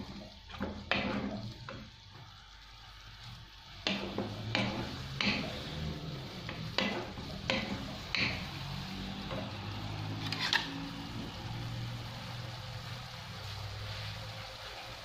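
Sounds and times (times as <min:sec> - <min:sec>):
wooden spatula scraping a pan: 0:00.0 - 0:01.9, 0:03.8 - 0:11.1
meat sizzling in a frying pan: 0:00.0 - 0:15.0.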